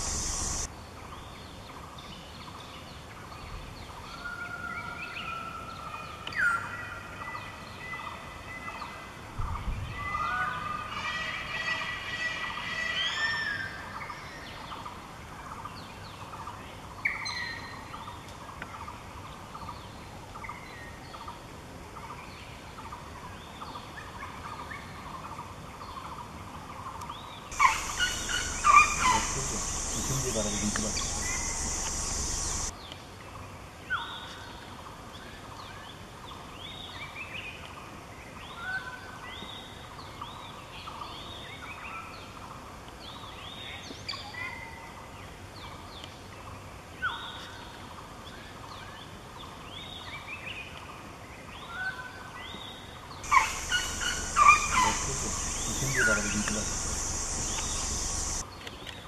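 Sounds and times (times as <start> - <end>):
steady high hiss: 0.0 - 0.7, 27.5 - 33.7, 53.2 - 58.5
forest birds calling: 0.0 - 11.8, 22.0 - 44.5, 45.2 - 58.7.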